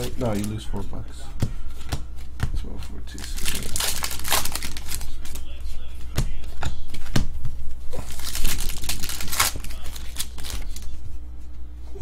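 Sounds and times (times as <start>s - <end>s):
paper wrapper tearing and crumpling: 0.0s - 0.6s, 3.1s - 5.3s, 8.0s - 10.9s
cards being handled: 0.0s - 11.6s.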